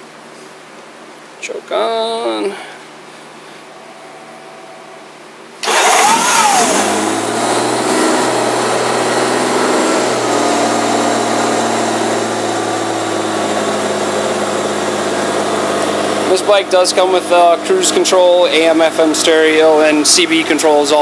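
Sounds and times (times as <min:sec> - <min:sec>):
motorcycle engine starting and idling: 0:05.6 - 0:21.0.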